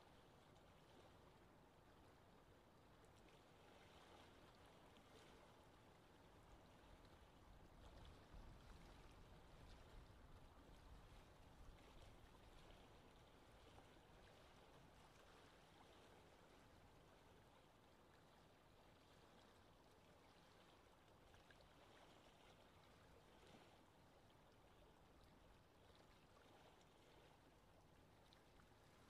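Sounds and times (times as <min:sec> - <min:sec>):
water lapping: 0:00.1 - 0:29.0.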